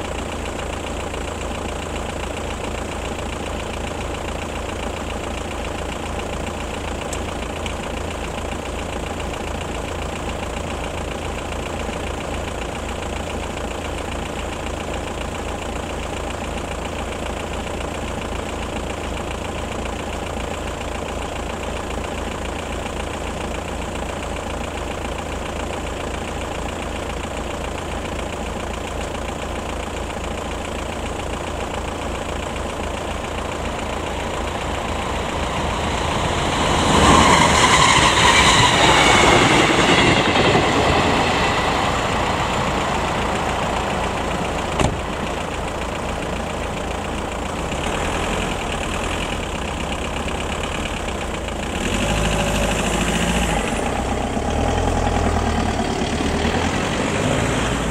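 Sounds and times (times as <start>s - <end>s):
approaching train: 34.2s - 45.2s.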